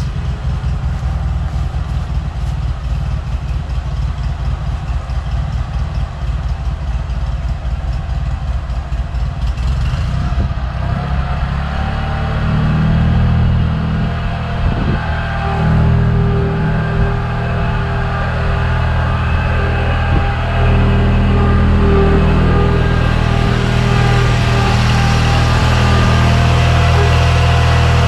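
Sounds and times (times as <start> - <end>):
mower engine running: 0.0 - 28.0.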